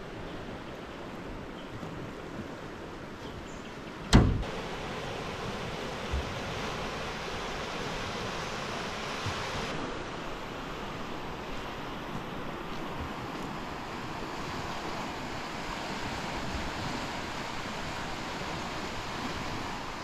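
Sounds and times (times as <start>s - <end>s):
sharp thump: 4.1s - 4.5s
fast-flowing river rushing: 4.2s - 20.0s.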